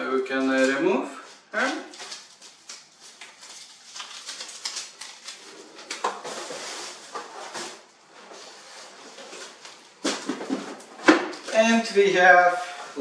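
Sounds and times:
film peeling with crackling: 0:01.6 - 0:07.4.

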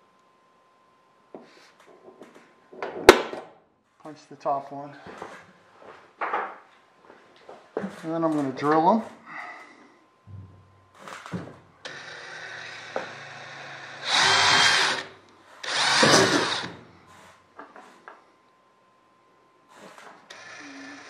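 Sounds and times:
cordless drill whirring: 0:11.1 - 0:16.8, 0:19.8 - 0:21.0
drill grinding through aluminum: 0:11.8 - 0:16.8, 0:20.3 - 0:21.0.

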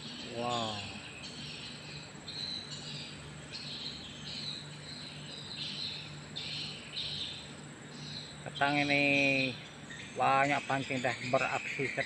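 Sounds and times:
insects buzzing: 0:00.0 - 0:12.0.

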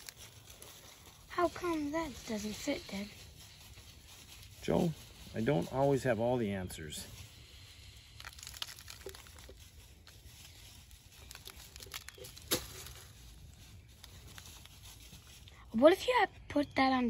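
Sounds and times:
granular powder pouring: 0:07.4 - 0:13.0.

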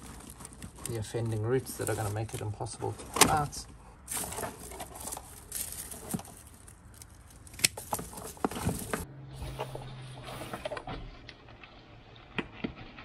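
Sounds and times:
roots rustling against plastic pot: 0:00.0 - 0:09.7.

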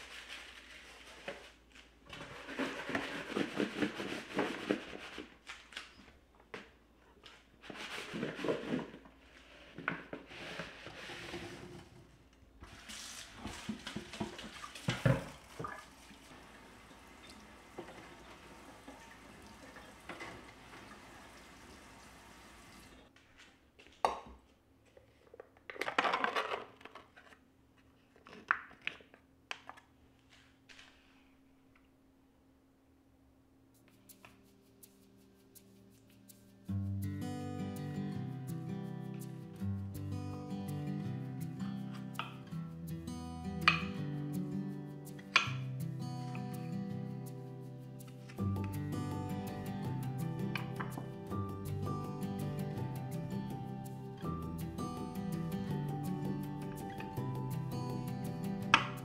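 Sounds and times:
spoon scraping plastic tub: 0:00.0 - 0:05.4, 0:07.6 - 0:15.0
tap water splashing into sink: 0:13.7 - 0:22.0.

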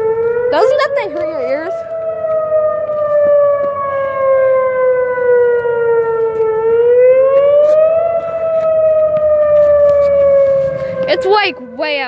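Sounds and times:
warning siren wailing: 0:00.0 - 0:12.0.

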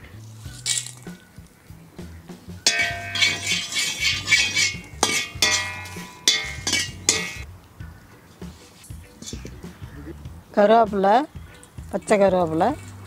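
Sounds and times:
steel ladle scraping iron pan: 0:02.6 - 0:07.4, 0:09.2 - 0:09.5.

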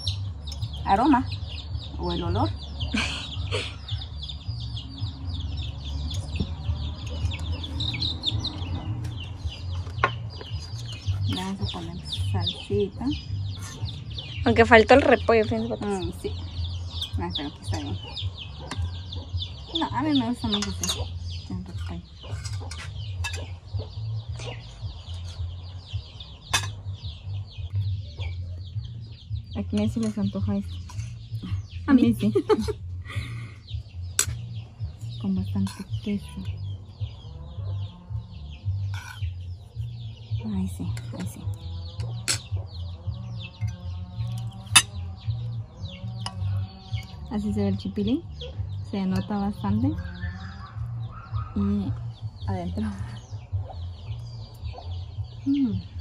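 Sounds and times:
birds chirping: 0:00.0 - 0:56.0
chickens clucking: 0:00.0 - 0:56.0
spoons clinking on plates: 0:26.5 - 0:26.8.

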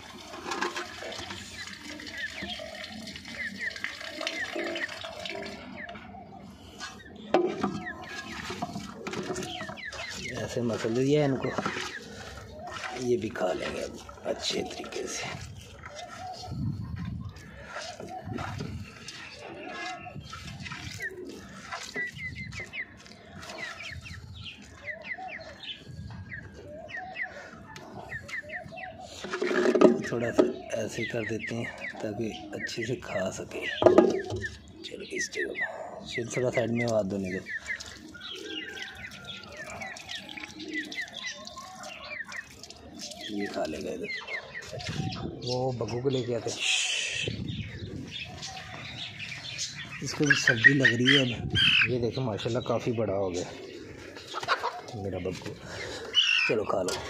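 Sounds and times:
water dripping and splashing: 0:00.0 - 0:16.6, 0:17.3 - 0:25.6, 0:36.1 - 0:45.0
wet squelching of bread: 0:00.0 - 0:26.6, 0:36.8 - 0:45.0
chickens clucking: 0:00.0 - 0:57.0
small birds chirping: 0:00.0 - 0:57.0.

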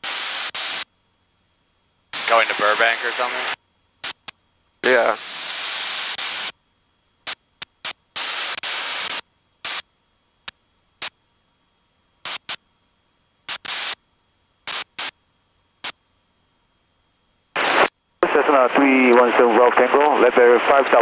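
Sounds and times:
headset static hiss bursts: 0:00.0 - 0:00.9, 0:02.1 - 0:06.6, 0:07.2 - 0:11.2, 0:12.2 - 0:12.7, 0:13.4 - 0:15.2, 0:15.8 - 0:16.0, 0:17.5 - 0:21.0.

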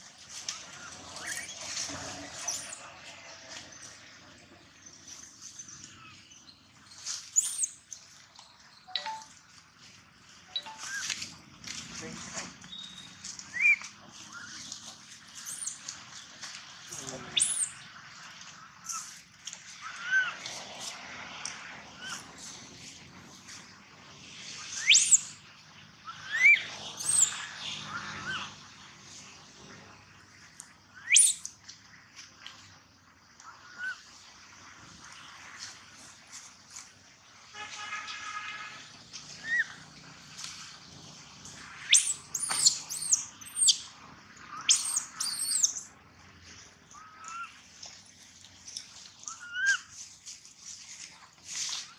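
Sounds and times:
infant monkey squealing: 0:17.4 - 0:17.7, 0:26.1 - 0:28.5, 0:31.0 - 0:31.5, 0:41.8 - 0:43.8, 0:44.6 - 0:45.8, 0:49.2 - 0:49.9
soft low monkey call: 0:44.5 - 0:45.8, 0:46.9 - 0:47.6, 0:49.2 - 0:50.0.

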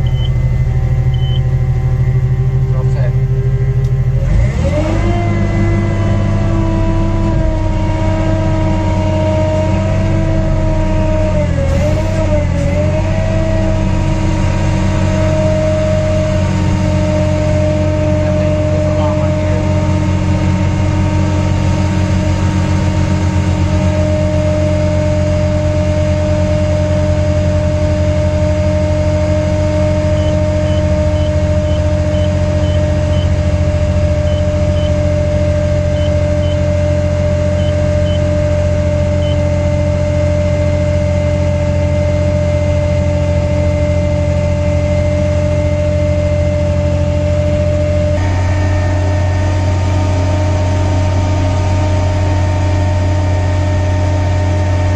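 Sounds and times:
faint short high beeps: 0:00.0 - 0:00.4, 0:01.1 - 0:01.5
engine idling: 0:00.0 - 0:54.9.

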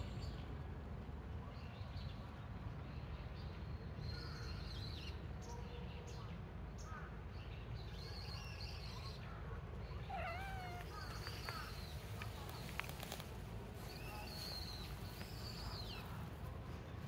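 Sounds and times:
small birds chirping: 0:06.8 - 0:17.0
low outdoor rumble: 0:09.1 - 0:17.0
wavering bird call: 0:10.0 - 0:11.8.

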